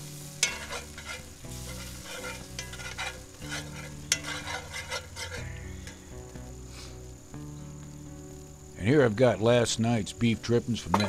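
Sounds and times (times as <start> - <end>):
spoon scraping skillet: 0.0 - 6.9
background music: 0.0 - 11.0
gravy sizzling: 0.0 - 11.0.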